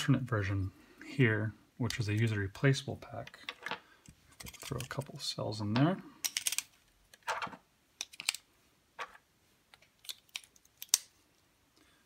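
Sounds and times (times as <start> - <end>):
plastic clicks and clatters: 6.2 - 8.4.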